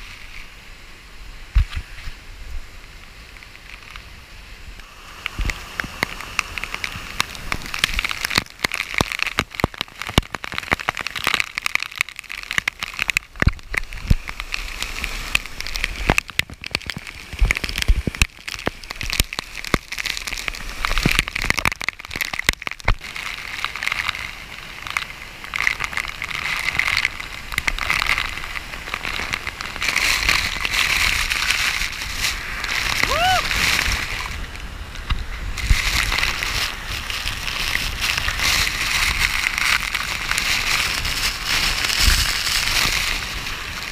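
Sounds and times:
waterfall rushing: 26.2s - 41.8s.

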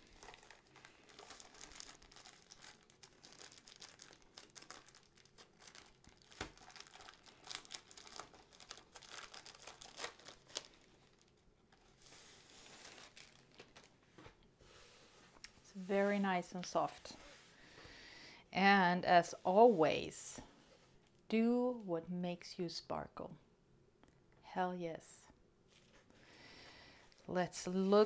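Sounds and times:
wrapping crinkling and tearing: 0.0s - 14.0s.

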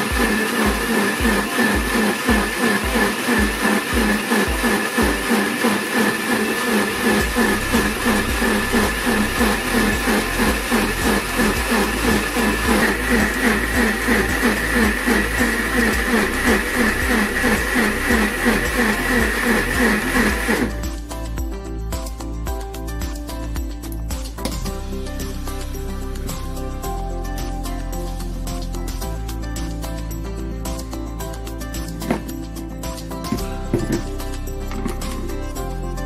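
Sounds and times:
smoothie churning in blender jar: 0.0s - 20.8s
blender motor whining: 0.0s - 21.1s.

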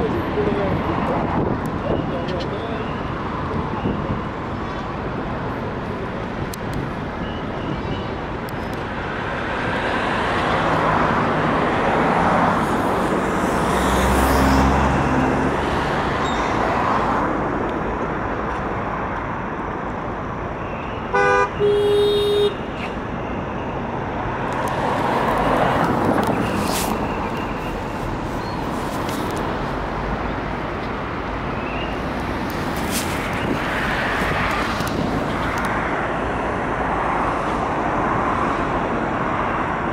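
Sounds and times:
road traffic passing: 0.0s - 39.9s
car horn honking: 21.1s - 22.7s.

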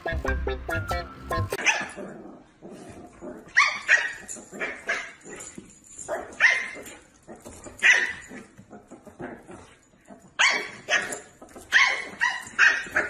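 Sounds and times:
puppy yapping: 10.4s - 13.0s.

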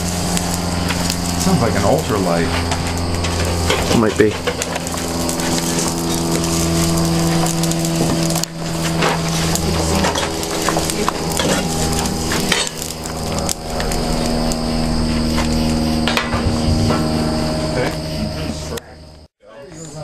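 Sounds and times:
steady engine-like drone: 0.0s - 19.3s
wood clattering and crackling: 0.1s - 14.6s.

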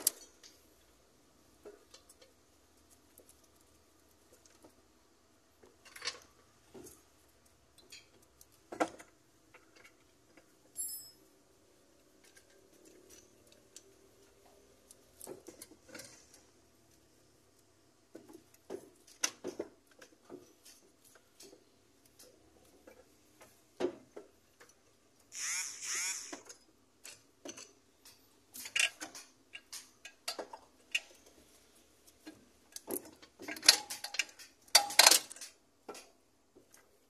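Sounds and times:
hand tools clinking on metal: 10.7s - 11.2s
rasping burst: 25.3s - 26.4s.

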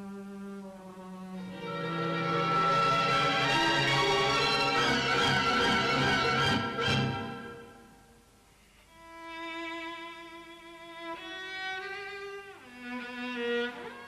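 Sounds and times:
solo cello melody: 0.0s - 7.7s, 8.9s - 14.0s
orchestral chord: 1.5s - 7.9s.

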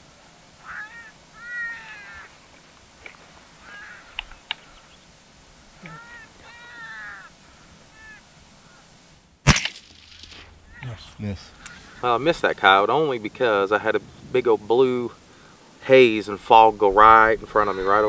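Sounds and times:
harsh caw-like calls: 0.6s - 2.4s, 3.6s - 4.9s, 5.8s - 9.0s, 10.3s - 13.0s, 17.0s - 18.0s
rifle shot: 9.4s - 10.7s.

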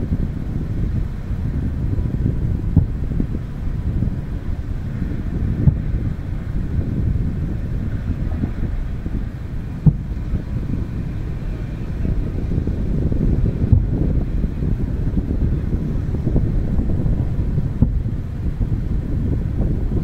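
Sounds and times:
city noise: 0.0s - 20.0s
wind on microphone: 0.0s - 20.0s
distant fireworks booming: 4.0s - 18.7s.

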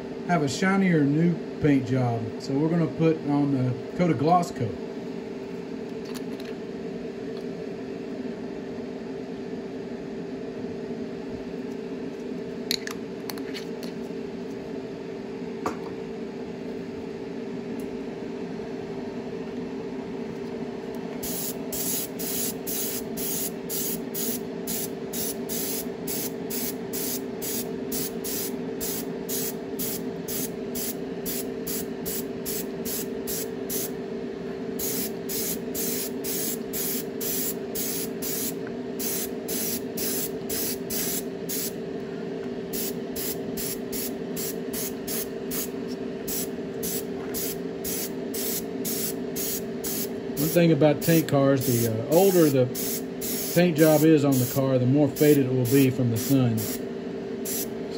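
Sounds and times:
airbrush hissing spurts: 21.2s - 33.9s, 34.8s - 41.7s, 46.3s - 54.6s, 57.5s - 57.7s.

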